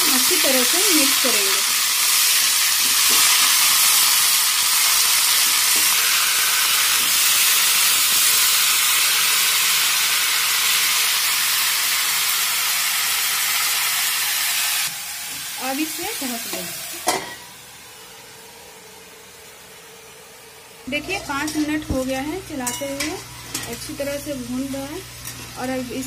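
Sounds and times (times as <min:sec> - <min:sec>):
vegetables sizzling in hot oil: 0:00.0 - 0:26.0
steel spatula stirring: 0:22.6 - 0:24.2.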